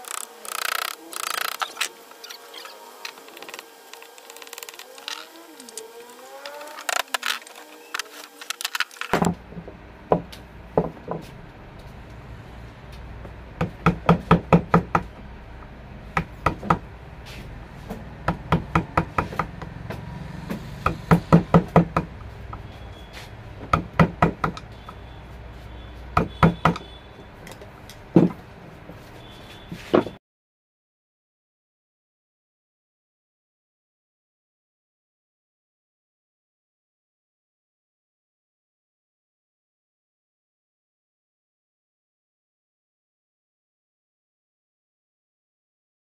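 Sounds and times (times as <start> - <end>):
hammer striking chisel into wood: 13.6 - 15.1, 16.2 - 16.8, 18.2 - 19.7, 20.8 - 22.1, 23.6 - 24.6, 26.2 - 26.9.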